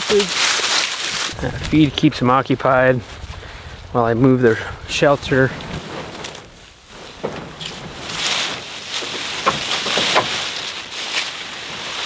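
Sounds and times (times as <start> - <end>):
shelter scraping over dry grass: 0.0 - 12.0
wooden frame knocks: 7.1 - 10.4.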